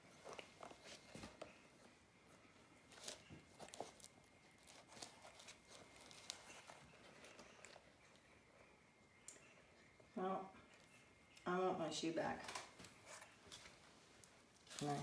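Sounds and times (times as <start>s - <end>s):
puppy chewing on a shoe: 2.8s - 8.3s.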